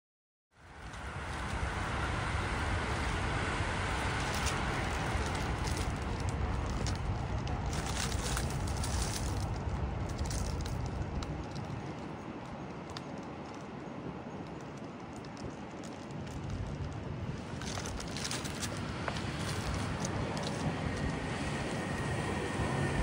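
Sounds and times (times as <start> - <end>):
low rumble: 0.6 - 12.1
faint crackles and ticks: 0.6 - 21.7.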